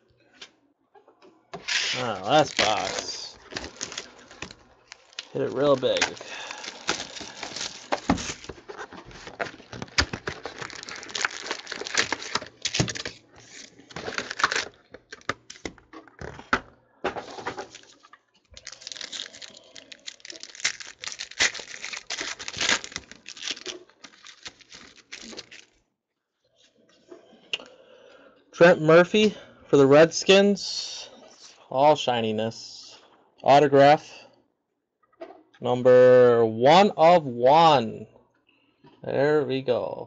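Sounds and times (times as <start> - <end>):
foil wrappers torn and crinkled: 1.7 - 15.8, 17.6 - 25.8.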